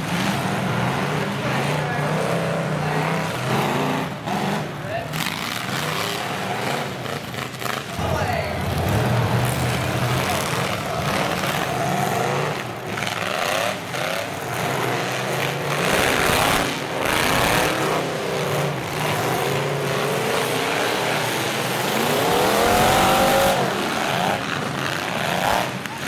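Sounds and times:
truck engines revving hard: 0.0s - 26.0s.

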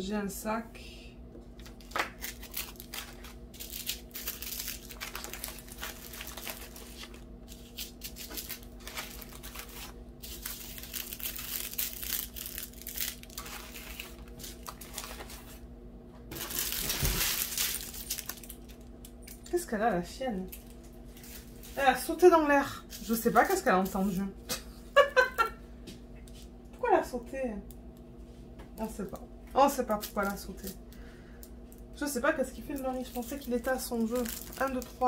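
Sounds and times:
plastic bags crinkling: 1.6s - 15.6s, 16.3s - 19.4s, 29.9s - 30.8s, 32.6s - 35.0s.

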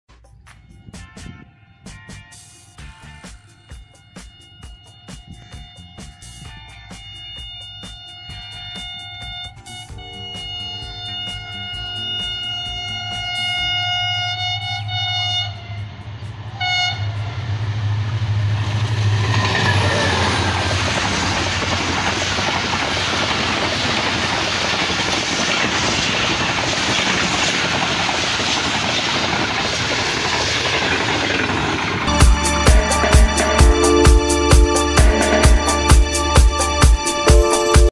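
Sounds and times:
locomotive engine humming: 0.2s - 37.9s
locomotive horn blasts: 0.6s - 16.0s, 16.6s - 17.4s, 32.1s - 37.7s
train coaches rushing past: 0.6s - 37.9s
wheel clatter on rail joints: 18.4s - 32.1s.

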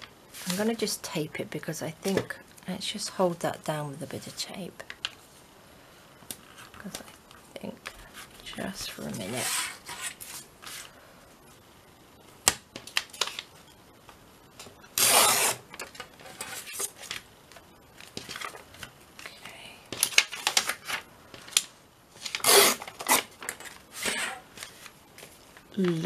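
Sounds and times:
paper tape tearing: 15.0s - 15.6s, 22.2s - 24.4s.

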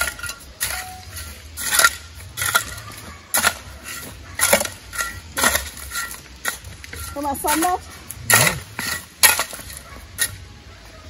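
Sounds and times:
hand tool striking soil and stones: 0.0s - 10.5s.

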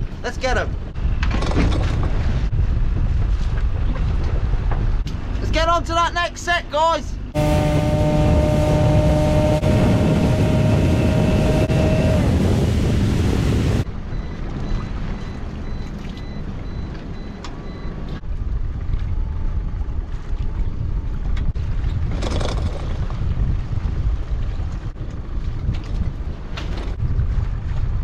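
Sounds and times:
wind: 0.0s - 28.0s
outboard motor running: 7.4s - 13.8s
water splash: 7.4s - 13.9s
rushing water: 7.4s - 16.6s.

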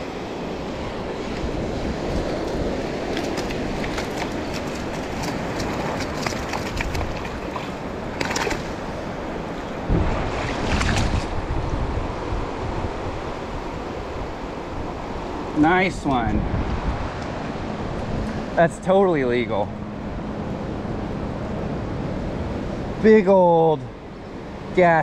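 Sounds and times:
small waves washing on sand: 0.0s - 18.5s
wind on microphone: 0.0s - 18.6s
fish splashing in shallow water: 1.2s - 11.5s.

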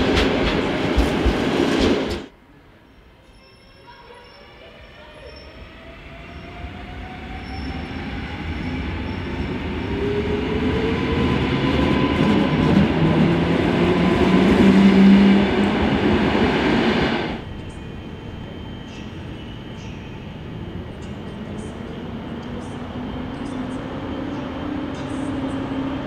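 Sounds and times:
wheels rumbling on rail: 0.0s - 2.3s.

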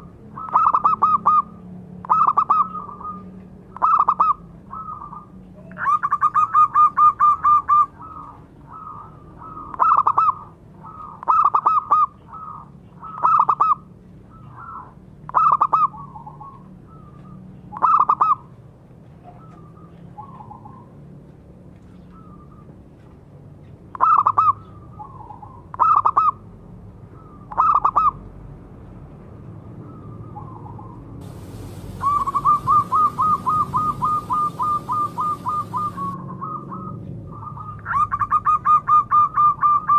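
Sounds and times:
dove cooing: 31.2s - 36.9s.

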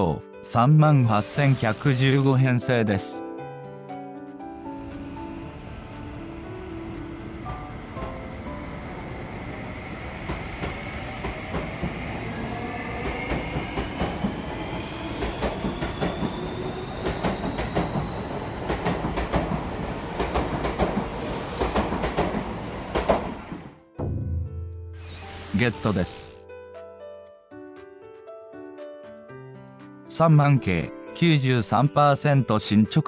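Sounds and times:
electric train motor whine: 4.6s - 23.6s, 25.0s - 26.3s
wheels clicking on rail joints: 5.0s - 23.6s.

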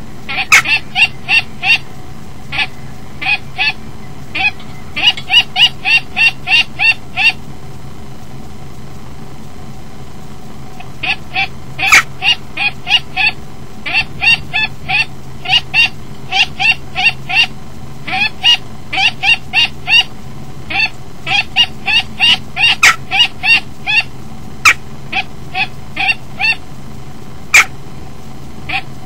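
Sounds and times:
kestrel alarm calls: 0.2s - 7.5s, 10.7s - 26.7s, 27.4s - 27.8s, 28.6s - 29.0s.

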